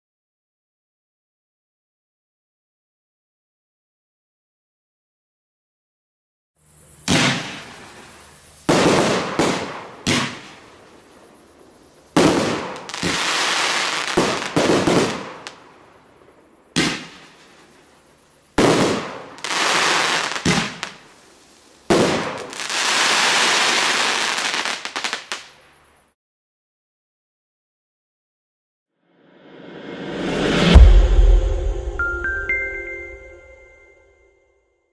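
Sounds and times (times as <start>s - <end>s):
firework shells bursting: 7.0s - 11.0s, 18.6s - 21.2s
small firework cracks: 7.1s - 11.6s, 12.2s - 17.9s, 18.6s - 25.6s
rushing firework tails: 29.4s - 32.3s.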